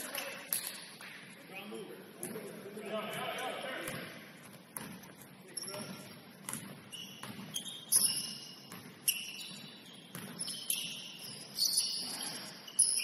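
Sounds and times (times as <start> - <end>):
shoes squeaking on hardwood court: 0.0 - 2.6, 3.9 - 13.0
basketball bouncing: 3.8 - 11.0.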